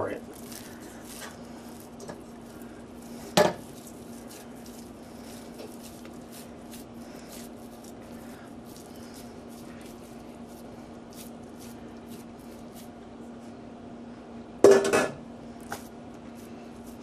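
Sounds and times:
hands shaping raw meat: 0:00.0 - 0:13.5, 0:15.6 - 0:17.0
steady hum: 0:00.0 - 0:17.0.

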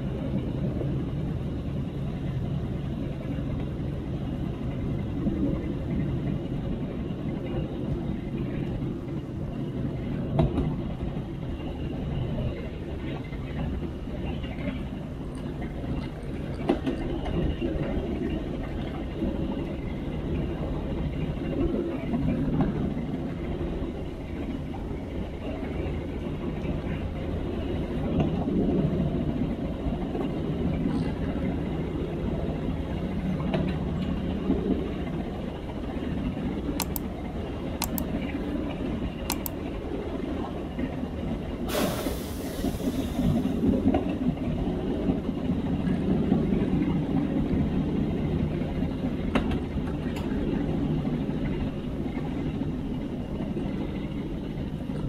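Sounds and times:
diesel locomotive rumbling on rails: 0:00.0 - 0:55.0
loud hiss: 0:41.7 - 0:43.4.

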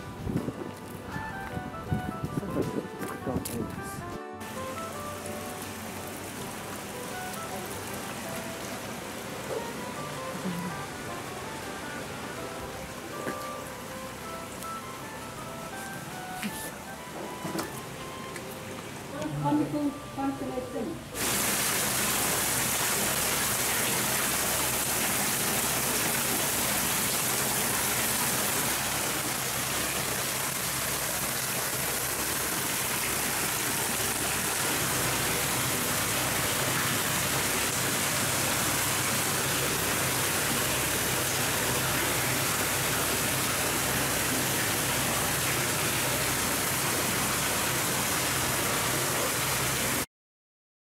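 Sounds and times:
water pouring into a bath: 0:21.2 - 0:50.0.

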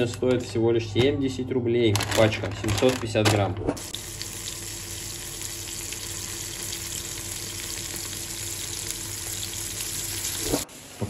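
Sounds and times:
fish sizzling in a pan: 0:03.9 - 0:11.0.

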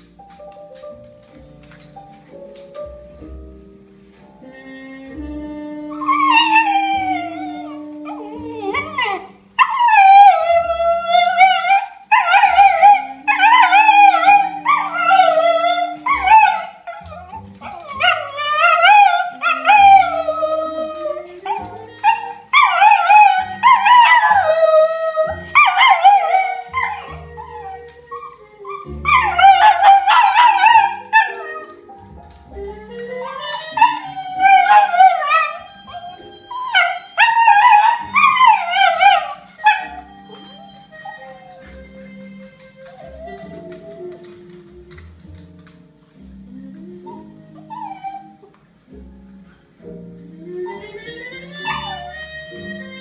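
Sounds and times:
jazz recording: 0:00.0 - 0:53.0
dog howling: 0:05.9 - 0:31.8, 0:32.6 - 0:44.9.

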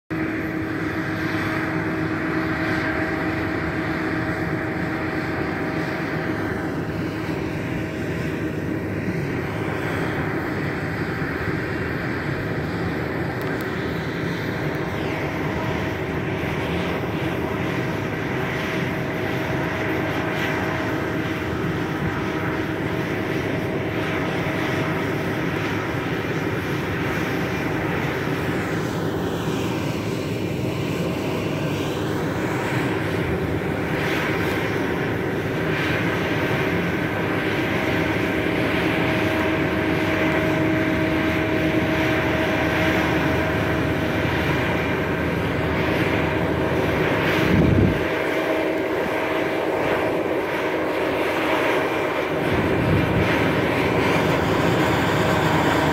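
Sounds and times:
boat engine droning under load: 0:00.1 - 0:55.9.

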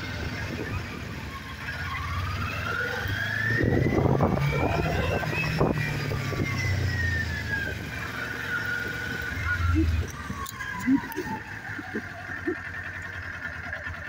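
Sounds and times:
motorcycle engine running: 0:00.0 - 0:14.0
wind noise on microphone: 0:03.6 - 0:06.9.

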